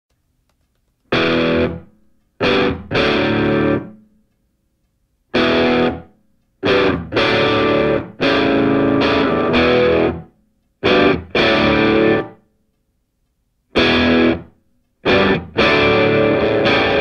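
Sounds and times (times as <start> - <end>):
distorted electric guitar chords: 1.1 - 4.1, 5.3 - 12.4, 13.7 - 17.0.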